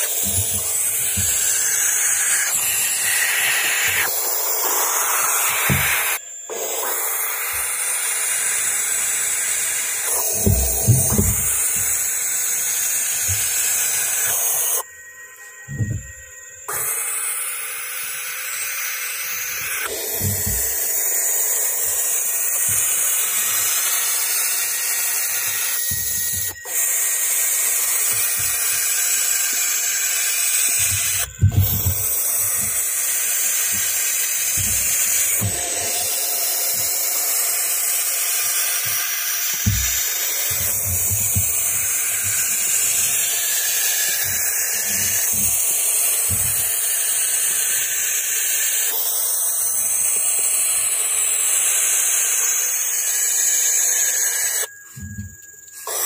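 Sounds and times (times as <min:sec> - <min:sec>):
owl chicks hissing: 0:00.0 - 0:12.0.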